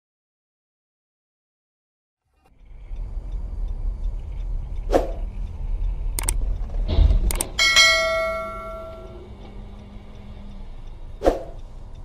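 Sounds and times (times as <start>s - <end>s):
car road noise rumble: 2.3s - 12.0s
sharp clicks and knocks: 4.1s - 9.9s
bell chime sound effect: 7.6s - 9.3s.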